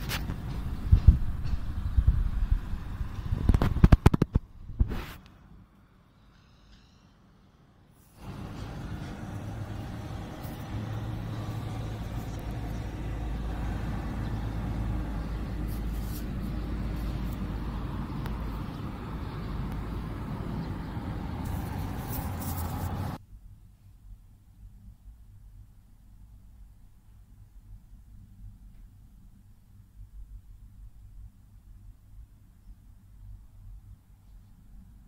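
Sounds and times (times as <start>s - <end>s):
road traffic rumble: 0.0s - 23.2s.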